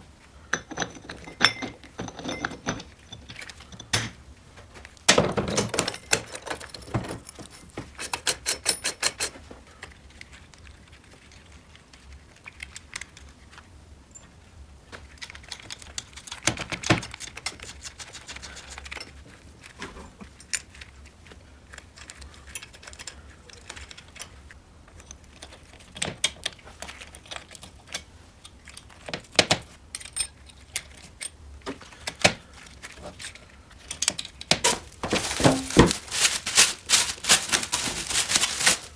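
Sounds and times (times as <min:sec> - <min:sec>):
metal clutch parts clinking: 0:05.5 - 0:09.4.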